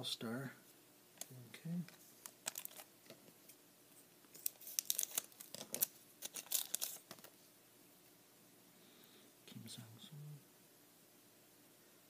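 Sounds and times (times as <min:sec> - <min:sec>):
wrapper crinkling and tearing: 0:02.2 - 0:02.9, 0:04.3 - 0:07.3.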